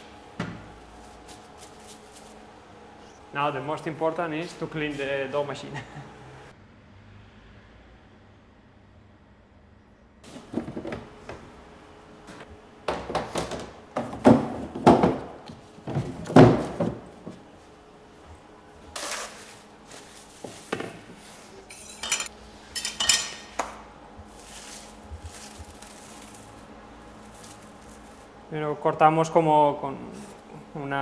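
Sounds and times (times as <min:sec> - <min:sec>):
kitchen equipment knocking and clattering: 0:10.3 - 0:11.4, 0:12.9 - 0:17.4.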